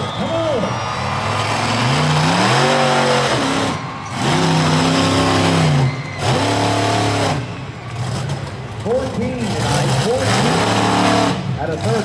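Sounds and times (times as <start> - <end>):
truck engine revving hard: 0.0 - 12.0.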